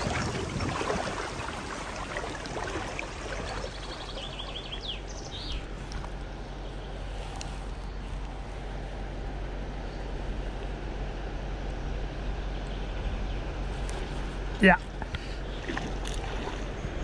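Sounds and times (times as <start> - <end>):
river water flowing over stones: 0.0 - 5.3
bird chirps: 3.4 - 5.7.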